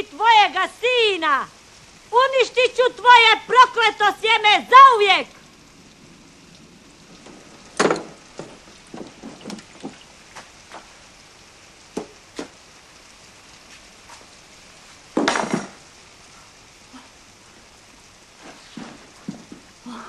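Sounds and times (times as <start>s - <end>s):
objects knocking: 7.8s - 10.0s.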